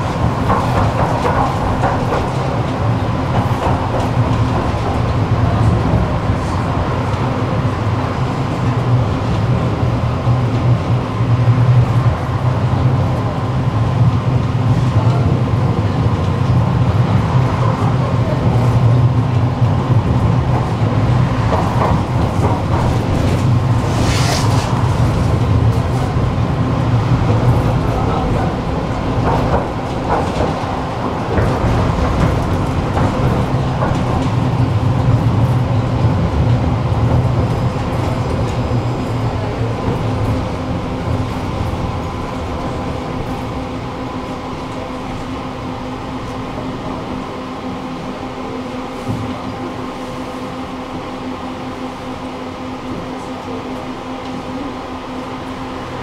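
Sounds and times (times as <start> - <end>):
tram rumble and motor hum: 0.0 - 56.0.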